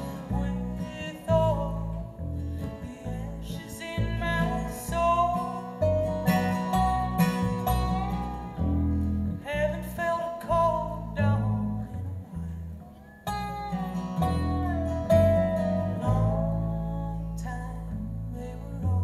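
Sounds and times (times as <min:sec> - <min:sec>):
person singing: 0:00.0 - 0:07.0, 0:14.2 - 0:19.0
acoustic guitars strumming: 0:00.0 - 0:19.0
plucked double bass: 0:00.0 - 0:19.0.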